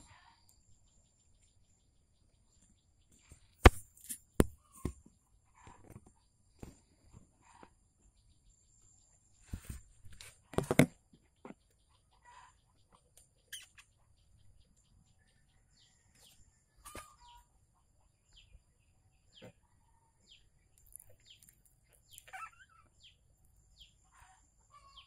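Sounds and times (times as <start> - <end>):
small birds chirping: 0.0 - 25.0
comb clicks: 20.8 - 22.3.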